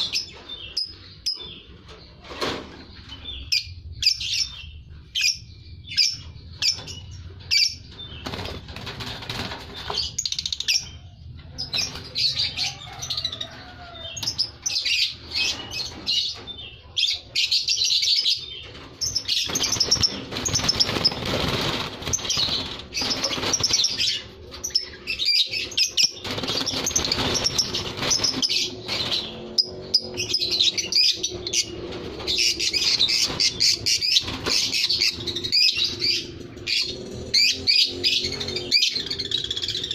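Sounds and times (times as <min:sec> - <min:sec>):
lovebirds chirping: 0:00.0 - 0:39.9
wings flapping: 0:08.2 - 0:10.2, 0:19.4 - 0:24.2, 0:26.1 - 0:29.4.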